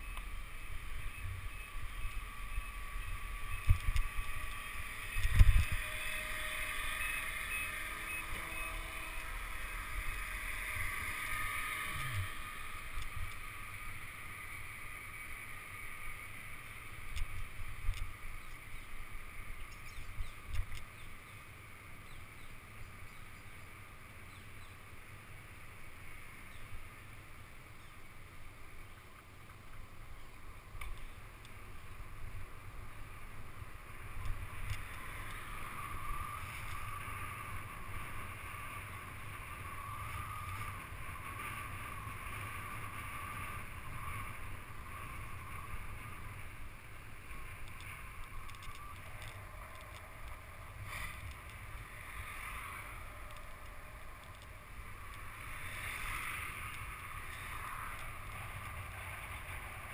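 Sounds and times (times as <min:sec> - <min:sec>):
wind noise on microphone: 0:00.8 - 0:07.3.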